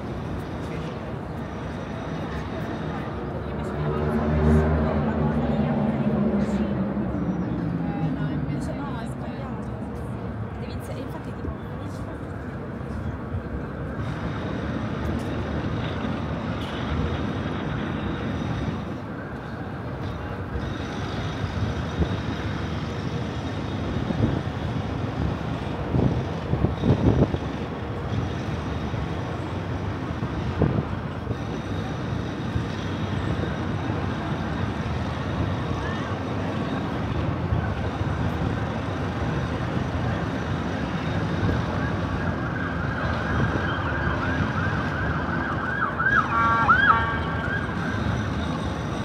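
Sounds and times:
city street traffic noise: 0.0 - 49.0
emergency vehicle siren: 39.3 - 49.0.

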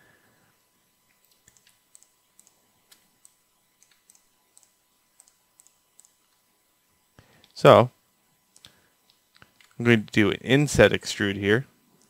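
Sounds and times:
faint mouse and keyboard clicks: 1.1 - 6.4.

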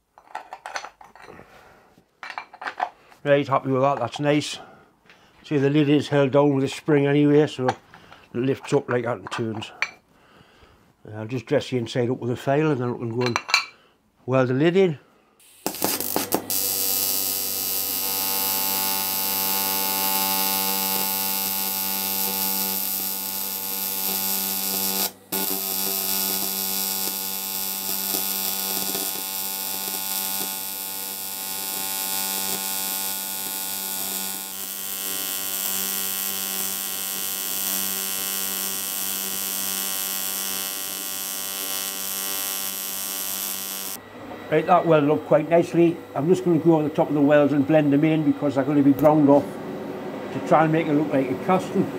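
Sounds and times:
welding arc buzzing: 15.4 - 44.0.

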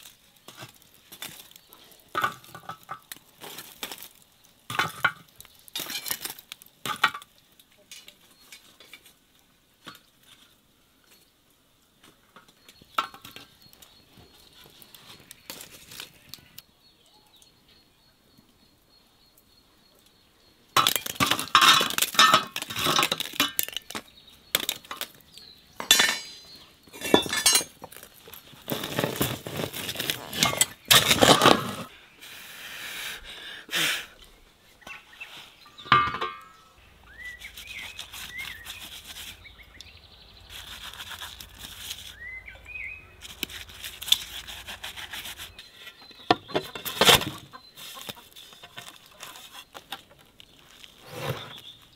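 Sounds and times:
metal cookware clanking: 21.3 - 23.8, 25.8 - 27.8, 35.7 - 36.6.

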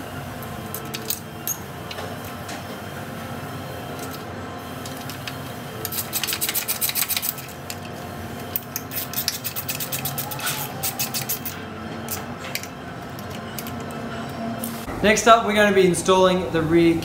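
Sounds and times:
hand tool rapid clicking: 5.8 - 7.5, 8.8 - 11.6.

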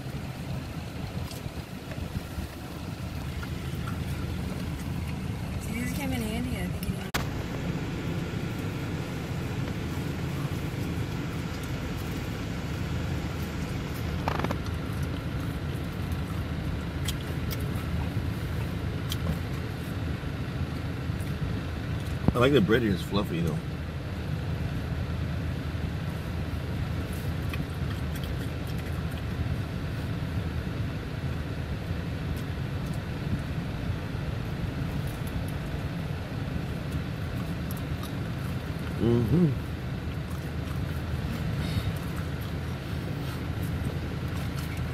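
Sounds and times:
low rumble inside car: 0.0 - 44.9
faint chewing clicks: 8.4 - 19.7, 27.4 - 29.4, 36.6 - 39.0, 40.0 - 44.9.

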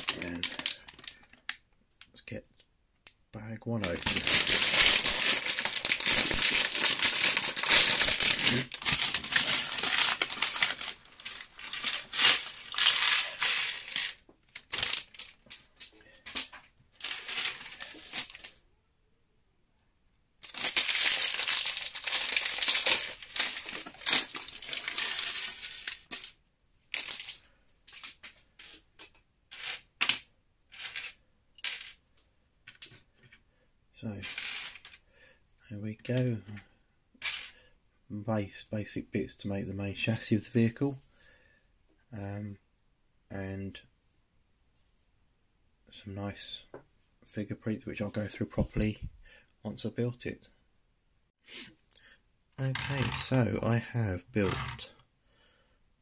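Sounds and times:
plastic pieces clattering: 0.0 - 1.6, 3.8 - 18.6, 20.4 - 32.0.

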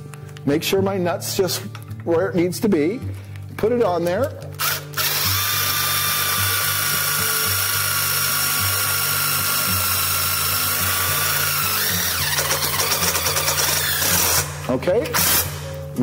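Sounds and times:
impact driver motor whine: 4.6 - 14.5
impact driver rapid clicking: 4.6 - 14.5.

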